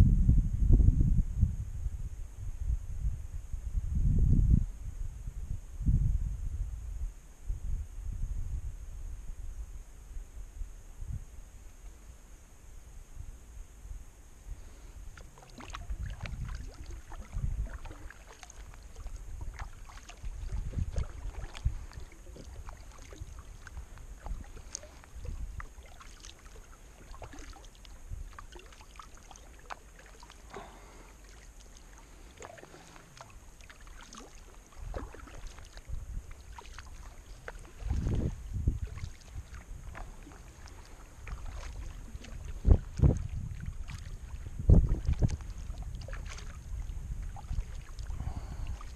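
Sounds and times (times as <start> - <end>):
paddle strokes: 14.5 - 48.9
water splashing: 14.6 - 48.9.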